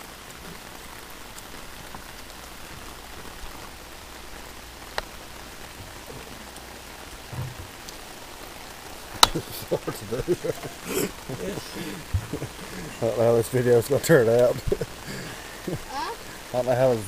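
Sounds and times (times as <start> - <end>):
rain falling on pavement: 0.0 - 17.0
short low thump: 7.3 - 7.8, 12.1 - 12.4.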